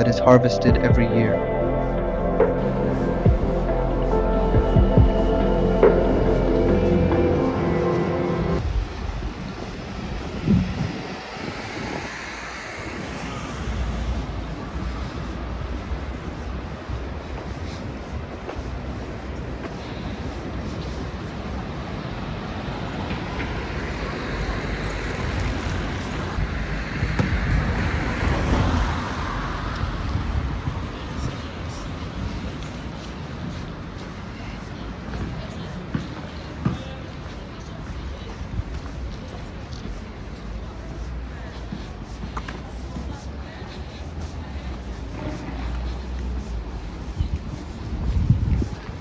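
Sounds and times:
road traffic passing: 0.0s - 49.0s
wind on microphone: 8.4s - 22.3s, 25.1s - 33.8s, 45.8s - 49.0s.

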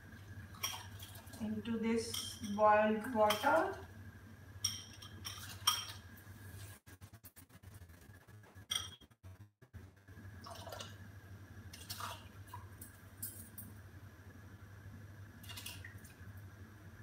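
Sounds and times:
faint water splashes: 0.1s - 2.3s, 11.7s - 12.7s.

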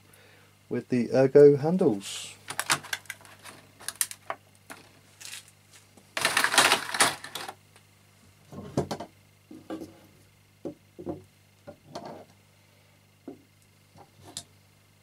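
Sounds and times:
plastic tray clicks and rattles: 6.2s - 7.6s.

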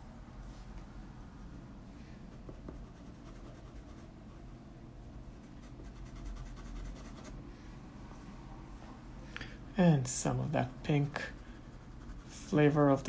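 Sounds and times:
pencil scratching on paper: 2.3s - 4.1s, 5.3s - 7.4s, 10.5s - 13.0s.

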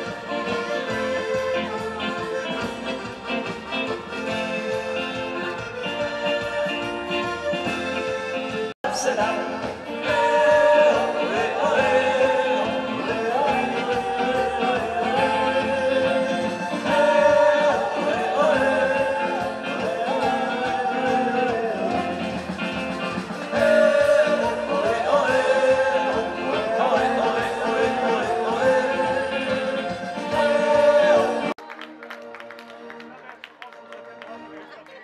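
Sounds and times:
live band music: 0.0s - 34.7s.

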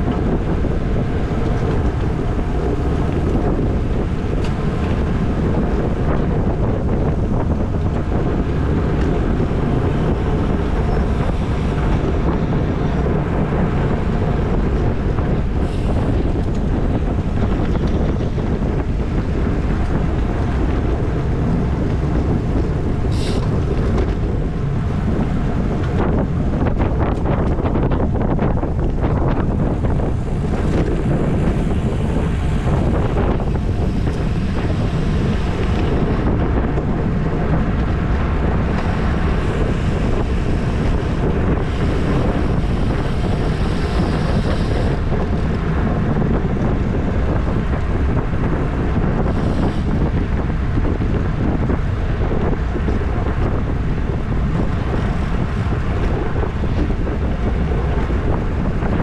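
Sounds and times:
wind buffeting microphone: 0.0s - 59.0s.

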